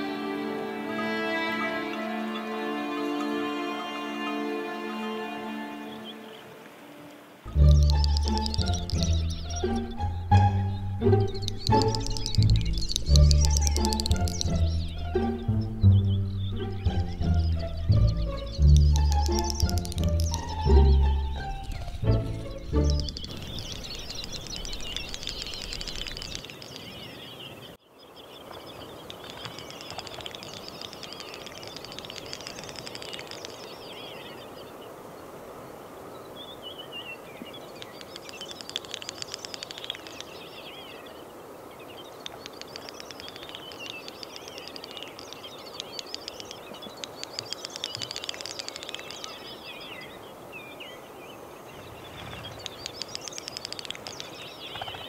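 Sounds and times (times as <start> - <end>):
bird bill-clicking: 7.5 - 27.3, 28.4 - 34.4, 37.3 - 41.2, 41.9 - 50.2, 51.7 - 55.0
bubbling twittering bird warble: 7.5 - 27.3, 28.4 - 34.7, 36.7 - 41.3, 41.9 - 50.2, 51.6 - 55.0.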